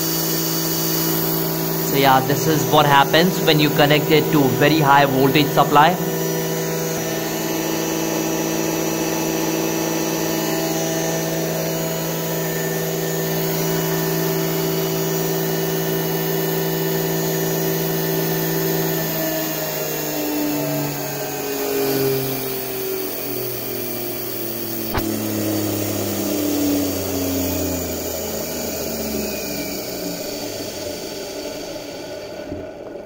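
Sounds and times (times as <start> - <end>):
electric motor whining: 0.0 - 19.2.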